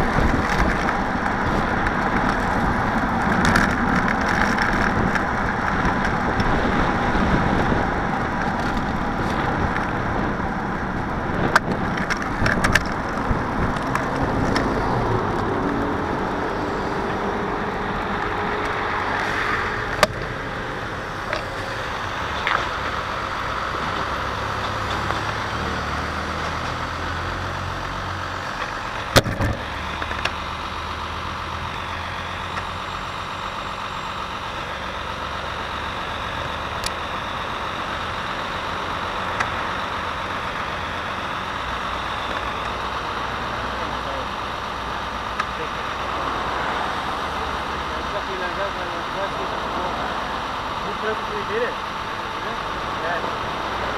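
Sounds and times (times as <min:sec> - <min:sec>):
wind noise: 0:00.0 - 0:23.1
diesel truck passing: 0:00.0 - 0:53.9
engines idling: 0:00.0 - 0:53.9.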